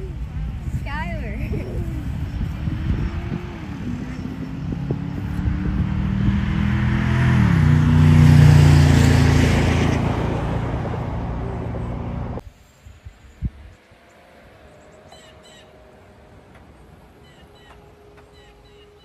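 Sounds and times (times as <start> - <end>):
engines revving hard: 0.0 - 12.4.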